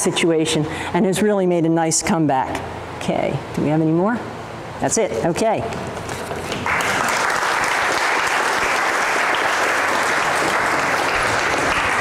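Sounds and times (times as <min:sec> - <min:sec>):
audience applauding: 0:06.5 - 0:12.0.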